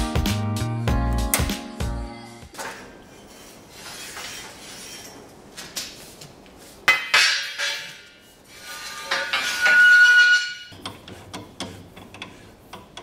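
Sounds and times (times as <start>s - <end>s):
steel bars clanking on metal rack: 6.9s - 13.0s.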